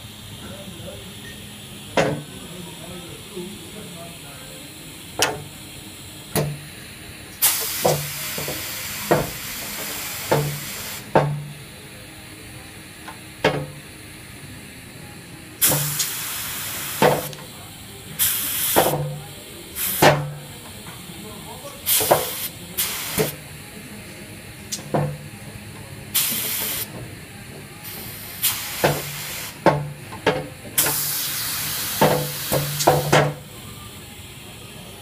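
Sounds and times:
compressed air hissing: 0.0 - 14.4, 15.6 - 35.0
valve clicks and cylinder clunks: 1.2 - 2.3, 5.2 - 5.6, 6.3 - 6.7, 7.3 - 11.6, 13.0 - 13.8, 15.6 - 16.2, 16.9 - 17.5, 18.2 - 19.3, 19.9 - 20.4, 21.9 - 23.4, 24.7 - 25.3, 28.4 - 33.5.

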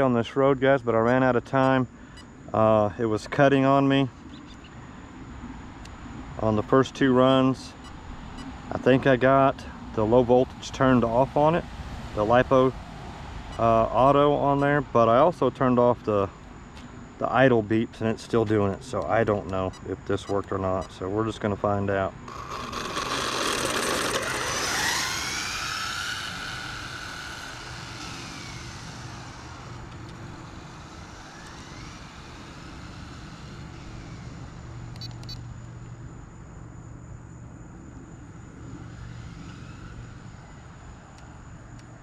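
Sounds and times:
rc car motor whine: 18.4 - 36.6, 37.7 - 42.0.

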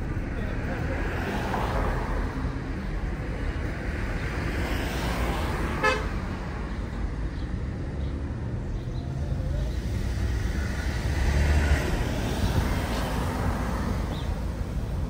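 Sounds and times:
traffic rumble: 0.0 - 15.0
car horn toot: 5.8 - 6.1.

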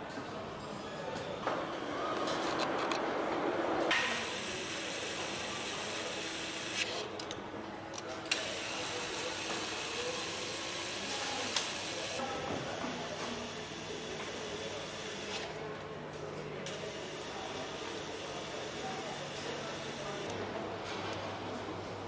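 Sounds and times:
factory noise hiss: 3.9 - 6.9, 16.7 - 20.3.

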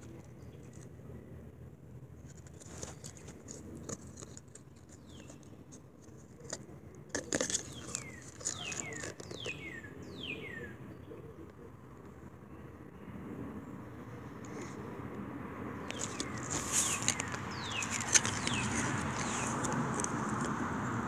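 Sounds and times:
cardboard tag handling rustles: 2.2 - 9.7, 15.8 - 20.6.

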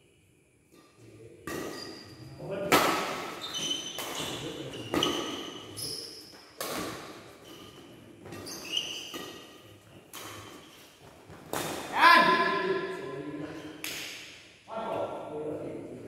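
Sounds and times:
rackets hitting shuttlecock: 1.4 - 12.6, 13.7 - 14.4
shoes squeaking on court: 3.3 - 11.7.

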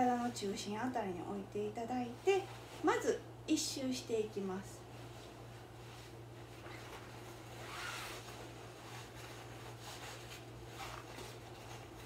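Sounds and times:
steady low hum: 0.0 - 12.0
cloth rustling: 4.8 - 12.0.

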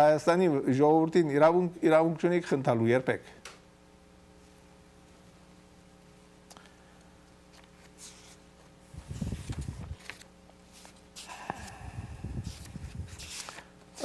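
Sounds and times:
faint steady hum: 0.0 - 14.0
paper rustling: 7.5 - 8.4, 9.0 - 11.8, 12.4 - 13.7.

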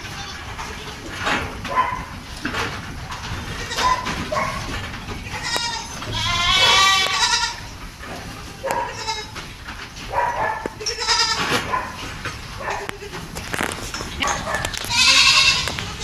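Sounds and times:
goats bleating: 0.0 - 1.2, 3.3 - 4.3, 5.0 - 9.5, 10.6 - 11.6, 12.7 - 16.0.

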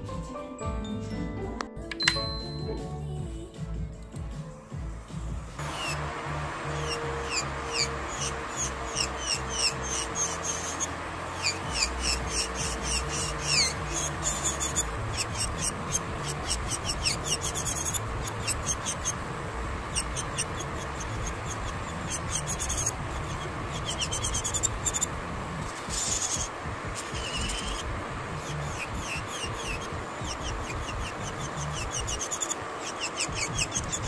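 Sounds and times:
high-pitched squeaks of drill bit: 5.6 - 19.2, 19.9 - 25.1, 26.0 - 34.0
nail drill whining: 5.6 - 25.1, 25.9 - 34.0.

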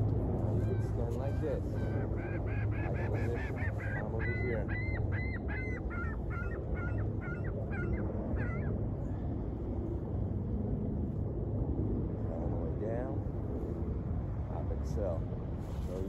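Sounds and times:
steady low rumble: 0.0 - 16.0
geese honking: 0.6 - 8.7.

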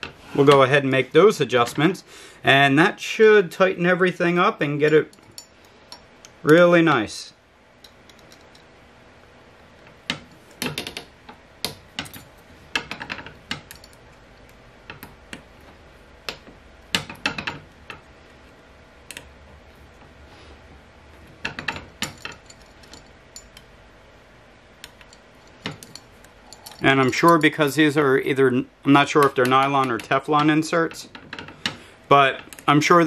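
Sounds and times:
metal clicks and clinks: 7.8 - 8.7, 10.1 - 14.1, 21.4 - 23.7, 24.8 - 27.6.

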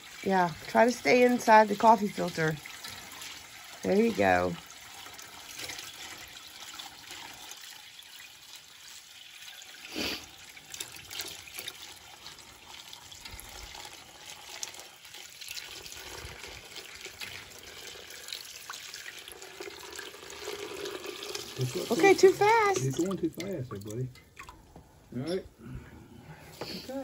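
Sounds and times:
sap pouring into a steel pot: 0.0 - 24.7.

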